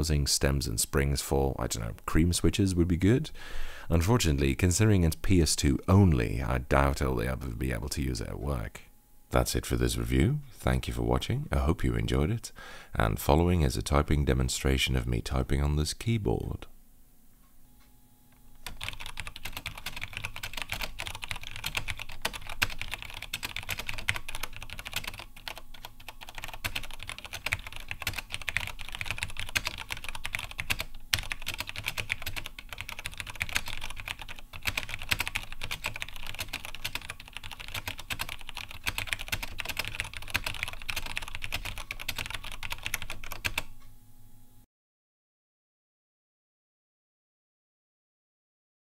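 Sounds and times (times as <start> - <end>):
fast typing on mechanical keyboard: 18.6 - 43.7.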